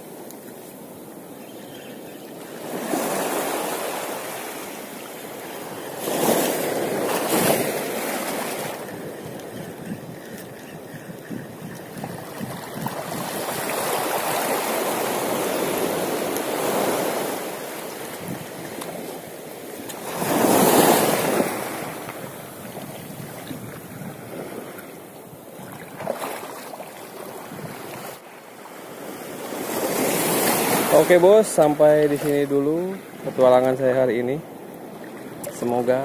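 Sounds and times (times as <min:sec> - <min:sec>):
sea waves washing: 0:00.0 - 0:36.0
wind on microphone: 0:05.6 - 0:28.2.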